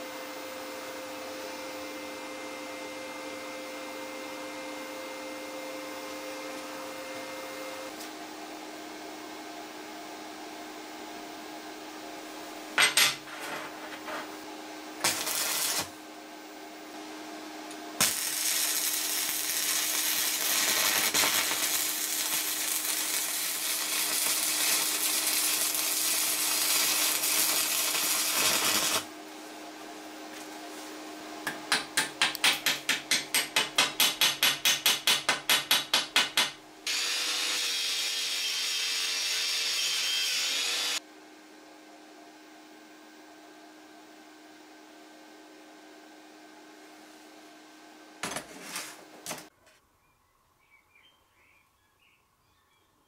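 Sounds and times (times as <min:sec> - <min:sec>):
steady hum: 0:12.5 - 0:30.9
angle grinder with wire brush: 0:12.8 - 0:14.4, 0:15.0 - 0:16.0, 0:18.0 - 0:29.1, 0:36.9 - 0:41.0
welding arc buzzing: 0:15.0 - 0:16.0, 0:18.0 - 0:29.1, 0:35.8 - 0:41.0.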